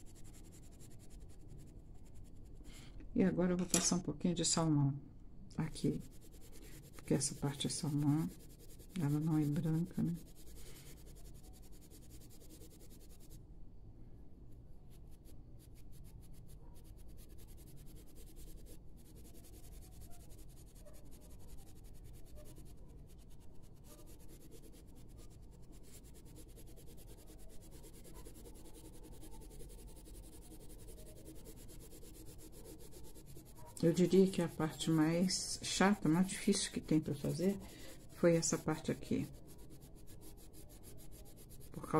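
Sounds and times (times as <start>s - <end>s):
pencil scratching on paper: 0.0s - 2.9s, 5.6s - 13.4s, 14.9s - 41.9s.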